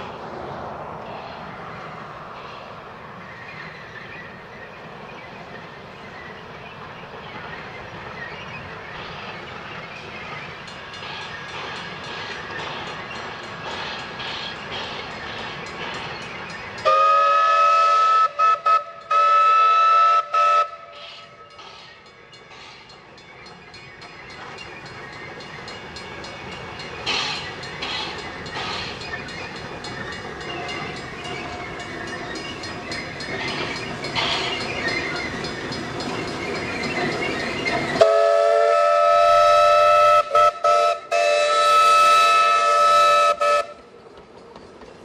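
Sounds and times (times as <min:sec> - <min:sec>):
running train: 0:00.0 - 0:45.0
steam locomotive whistle: 0:16.8 - 0:21.4, 0:37.9 - 0:43.9.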